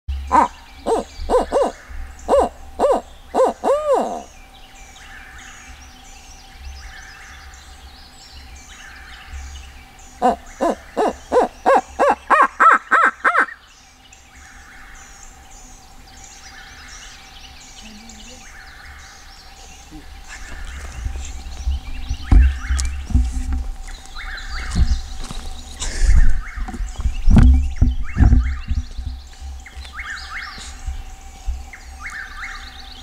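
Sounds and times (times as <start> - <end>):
owl call hoots: 0.3 - 4.3, 10.2 - 13.6.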